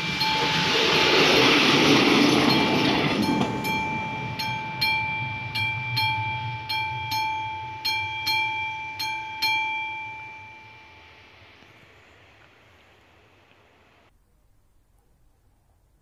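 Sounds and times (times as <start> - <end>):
level crossing bell ringing: 0.0 - 11.1
diesel railcar rumble: 0.0 - 14.0.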